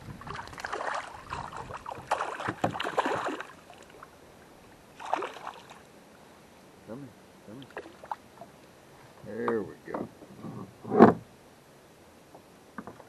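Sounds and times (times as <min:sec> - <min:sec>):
fish splashing at surface: 0:00.3 - 0:04.0, 0:05.0 - 0:05.8.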